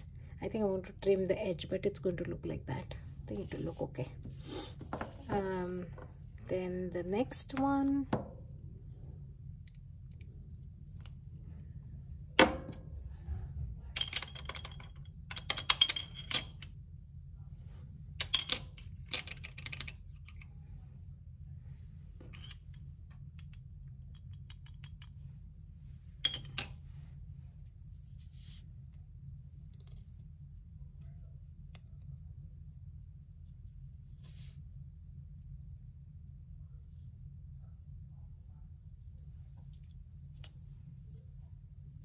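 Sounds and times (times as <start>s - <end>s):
steady low hum: 0.0s - 42.0s.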